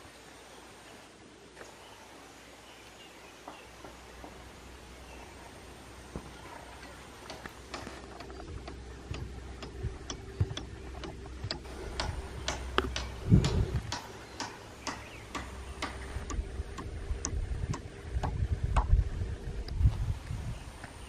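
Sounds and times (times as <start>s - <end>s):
low rumble: 4.7s - 20.6s
heavy dull bump: 7.3s - 19.0s.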